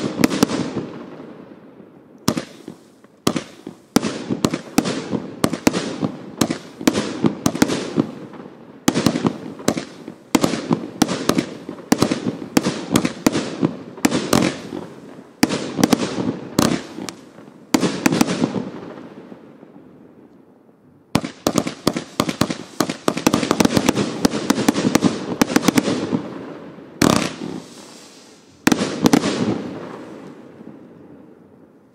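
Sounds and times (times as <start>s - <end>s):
loud firework bangs: 0.0s - 1.6s, 2.2s - 19.4s, 21.1s - 31.3s
firework cake shots: 2.3s - 8.0s, 21.2s - 26.0s.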